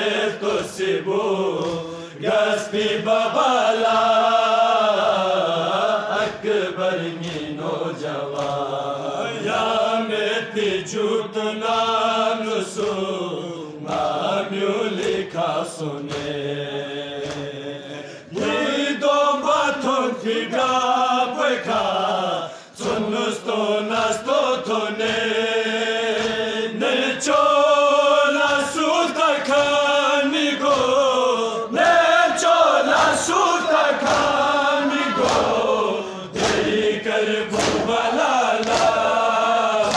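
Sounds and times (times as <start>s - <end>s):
men chanting together: 0.0s - 39.9s
hands striking chests: 37.5s - 37.9s.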